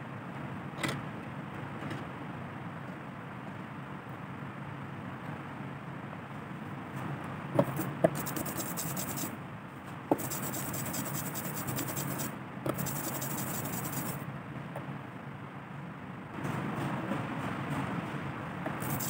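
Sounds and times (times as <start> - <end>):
brayer rolling through ink: 7.6 - 9.3, 10.1 - 14.2, 18.7 - 19.0.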